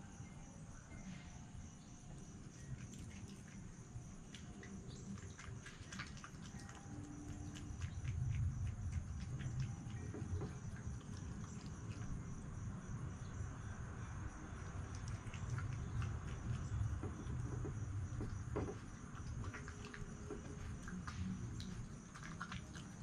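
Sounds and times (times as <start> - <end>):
insects trilling: 0.0 - 23.0
fox chewing dry food: 2.2 - 23.0
low rumble: 7.3 - 22.3.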